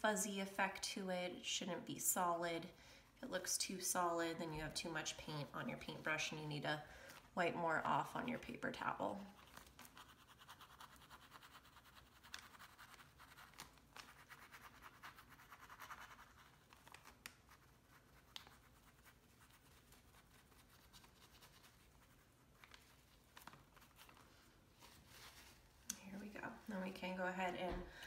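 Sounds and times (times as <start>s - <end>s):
paintbrush scrubbing on canvas: 9.3s - 16.8s.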